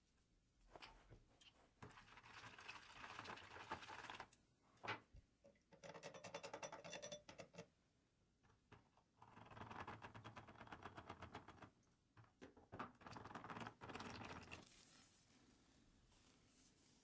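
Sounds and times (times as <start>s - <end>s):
liquid poured into plastic tub: 1.8s - 4.4s, 12.8s - 14.8s.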